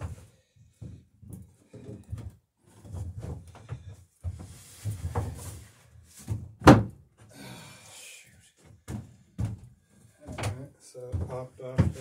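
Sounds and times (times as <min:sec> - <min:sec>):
soft wooden knocks: 0:00.8 - 0:05.4
sharp wooden thunk: 0:06.6 - 0:06.9.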